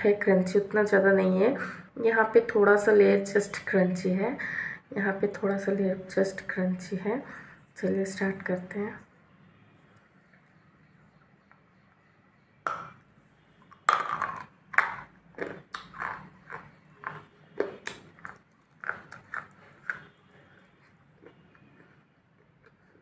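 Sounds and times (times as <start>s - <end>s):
biting and crunchy chewing: 13.7s - 23.0s.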